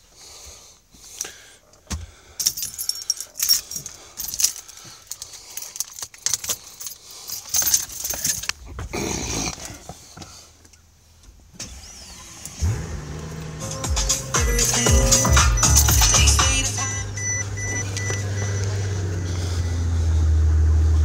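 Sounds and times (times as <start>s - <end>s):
car keys jangling: 2.4s - 8.6s, 13.2s - 19.0s
car engine starting: 10.7s - 21.0s.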